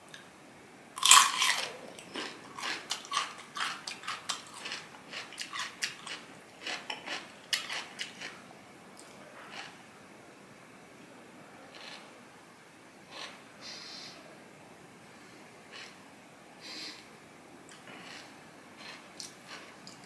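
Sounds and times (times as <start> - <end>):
crunchy chewing: 1.0 - 8.4, 9.0 - 9.8, 11.7 - 12.1, 15.7 - 16.0, 17.7 - 20.0.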